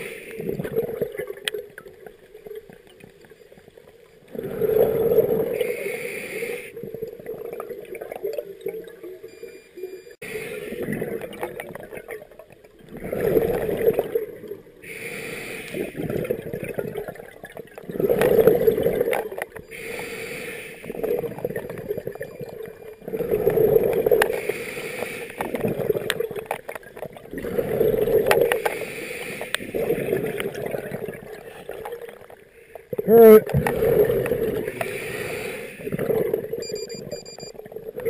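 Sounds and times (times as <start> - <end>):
exhaled bubbles gushing: 0.3 - 2.7, 6.7 - 9.2, 10.6 - 14.9, 15.7 - 19.6, 20.8 - 24.4, 25.4 - 28.7, 29.6 - 34.9, 35.8 - 38.0.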